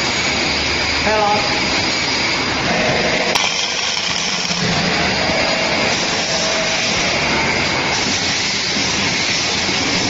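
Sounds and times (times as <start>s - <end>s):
loud machine hiss: 3.3s - 10.0s.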